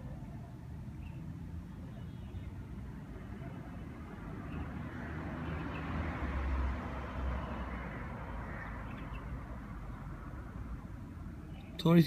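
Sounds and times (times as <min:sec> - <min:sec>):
vehicle passing: 0:02.4 - 0:11.6.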